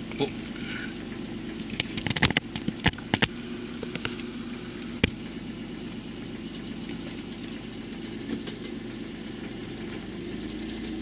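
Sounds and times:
car engine idling: 0.0 - 11.0
sharp clicks: 1.7 - 3.4.

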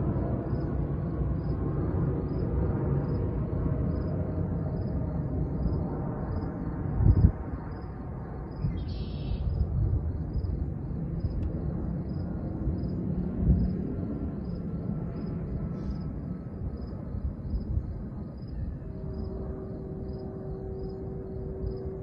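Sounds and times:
distant traffic: 0.0 - 22.0
wind: 0.0 - 22.0
wind buffeting microphone: 0.0 - 22.0
faint high insect chirp: 0.3 - 22.0.

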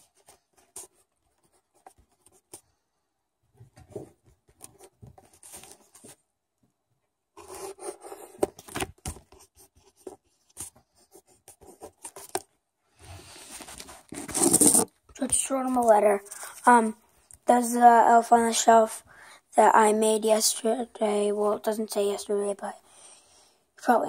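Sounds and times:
pen scratching on paper: 7.4 - 12.4, 13.7 - 14.9.

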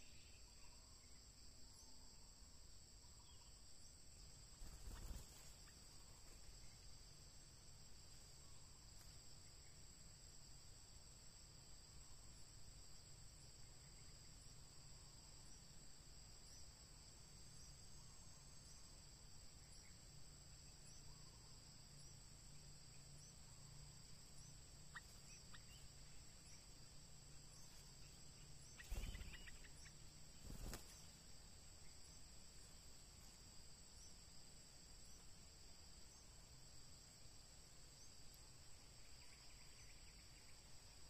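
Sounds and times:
high insect trilling: 24.3 - 31.2.

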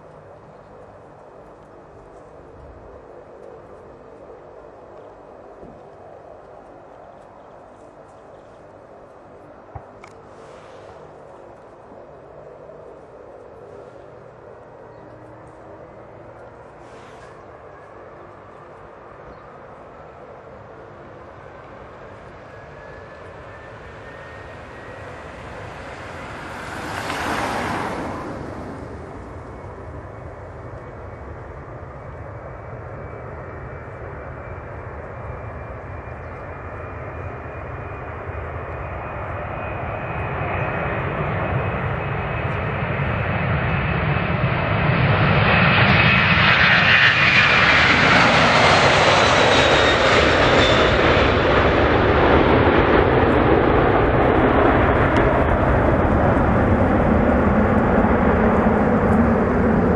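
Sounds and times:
jet engines spooling up: 10.0 - 12.0, 37.6 - 59.9
brief rushing swell: 10.3 - 11.2.

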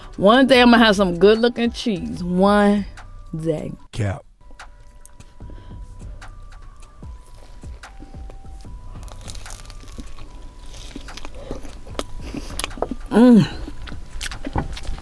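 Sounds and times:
crunchy chewing and biting: 6.2 - 15.0
person humming: 12.1 - 13.8.

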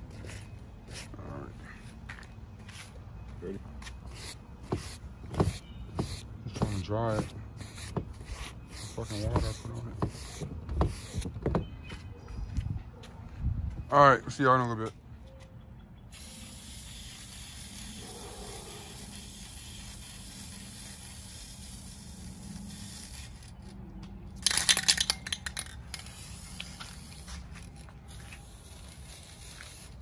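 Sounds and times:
aerosol spray can hissing: 16.1 - 23.4, 28.4 - 30.0.

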